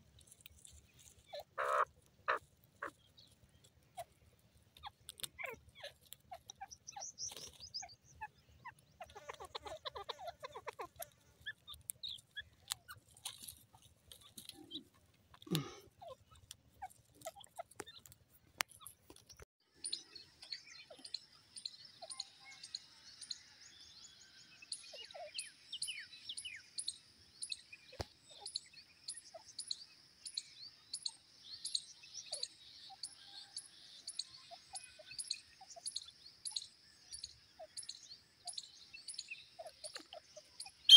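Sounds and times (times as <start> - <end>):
bird calls and chirps: 0.0 - 40.9.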